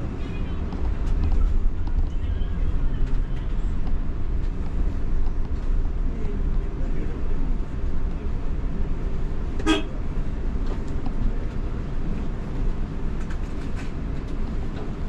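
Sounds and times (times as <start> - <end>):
bus engine and road rumble: 0.0 - 15.0
vehicle horn toot: 9.6 - 9.9.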